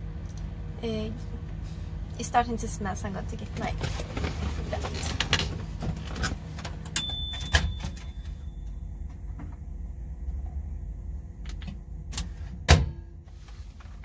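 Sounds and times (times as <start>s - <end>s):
microwave door clunking shut: 12.7s - 13.0s.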